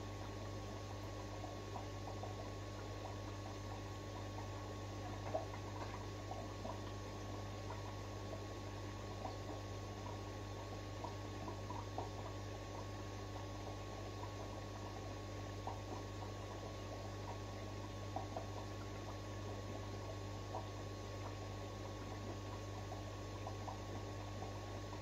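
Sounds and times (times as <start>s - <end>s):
aquarium filter hum: 0.0s - 25.0s
bubbling water: 0.0s - 25.0s.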